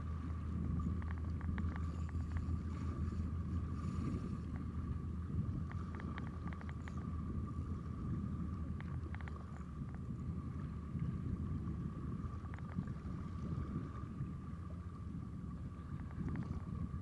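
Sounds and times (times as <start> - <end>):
rumble of handling and wind: 0.0 - 17.0
small reel clicks: 5.6 - 7.0.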